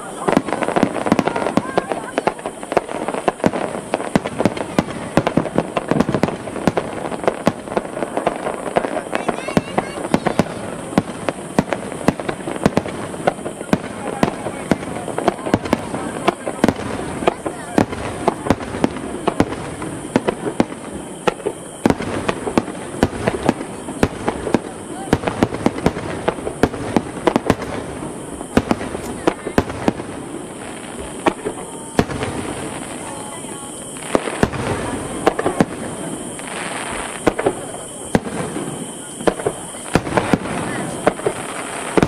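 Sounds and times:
continuous noisy background: 0:00.0 - 0:42.0
firework shells bursting: 0:00.0 - 0:42.0.

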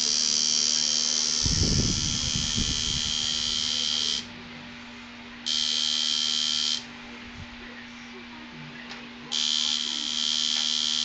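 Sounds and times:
tattoo machine buzzing: 0:00.0 - 0:04.3, 0:05.4 - 0:06.9, 0:09.3 - 0:11.0.

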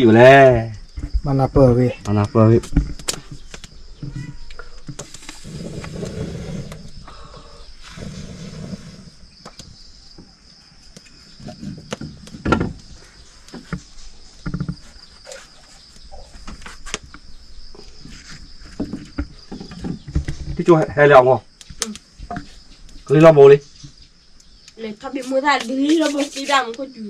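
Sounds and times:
firewood and utensils clattering: 0:17.8 - 0:21.0.

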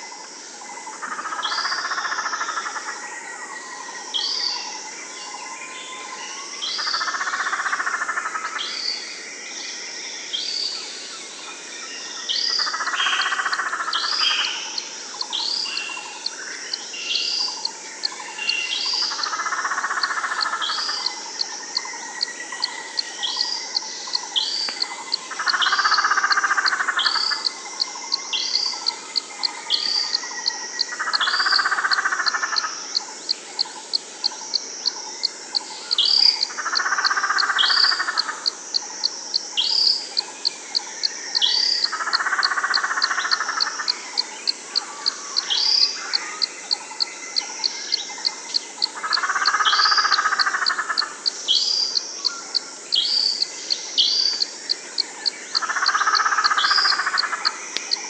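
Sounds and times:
high animal clicks and chirps: 0:17.4 - 0:58.0.

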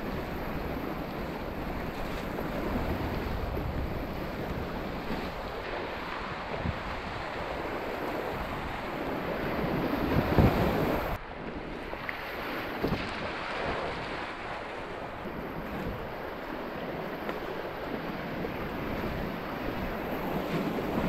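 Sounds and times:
water splashing over bow: 0:00.0 - 0:21.0
wind on microphone: 0:00.0 - 0:21.0.

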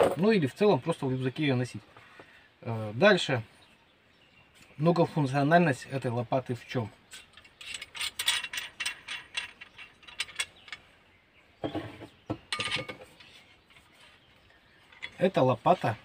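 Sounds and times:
metal shovel parts clicking: 0:07.0 - 0:10.9.

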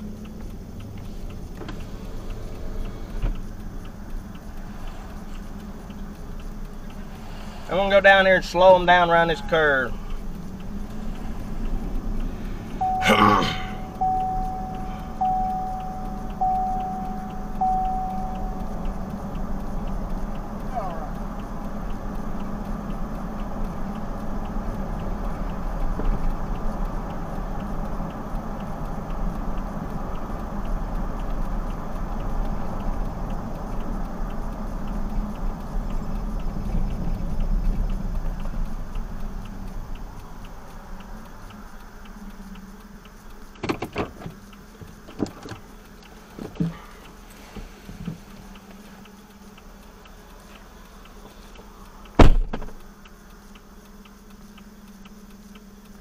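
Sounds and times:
engine idling quietly: 0:00.0 - 0:56.0
vehicle engine and road noise: 0:00.0 - 0:56.0
clicks and knocks in cab: 0:43.6 - 0:45.7, 0:46.3 - 0:47.0, 0:52.2 - 0:52.8.

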